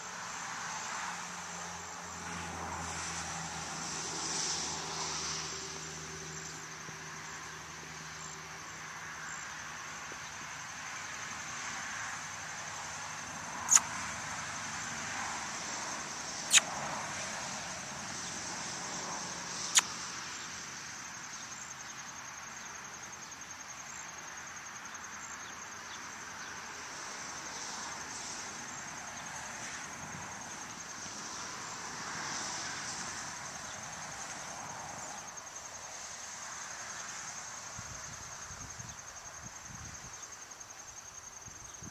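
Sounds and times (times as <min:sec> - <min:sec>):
insect chirring: 0:06.2 - 0:14.2, 0:16.3 - 0:16.9.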